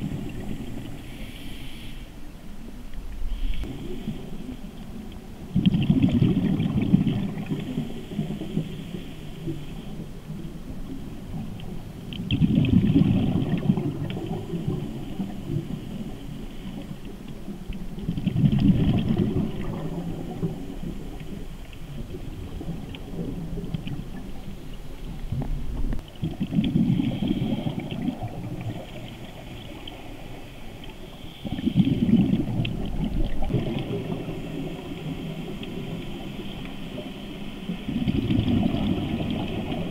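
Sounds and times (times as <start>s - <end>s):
underwater exhaust bubbles: 0.0s - 39.9s
regulator breathing hiss: 0.3s - 2.2s, 7.6s - 10.0s.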